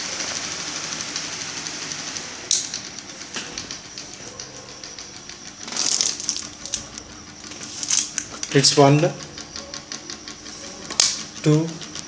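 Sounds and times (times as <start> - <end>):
table fan running: 0.0 - 12.0
sharp clicks: 2.5 - 12.0.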